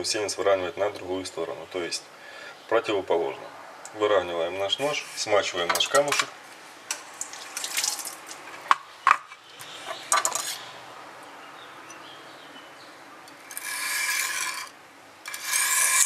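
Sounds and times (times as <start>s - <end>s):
knife drawn across sharpening stone: 13.5s - 14.7s, 15.3s - 16.0s.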